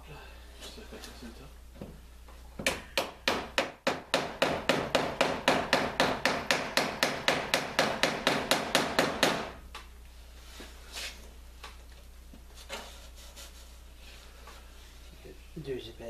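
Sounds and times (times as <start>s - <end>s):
hammer tapping on wooden hull: 2.6s - 9.5s.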